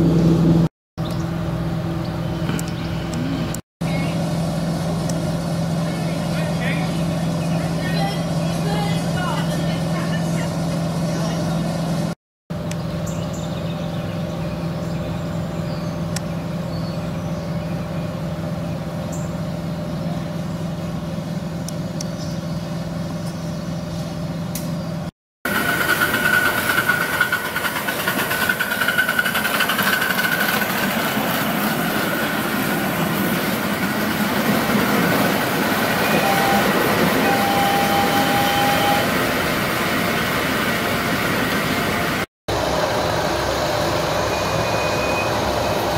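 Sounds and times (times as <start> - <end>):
steam locomotive running: 25.5 - 45.9.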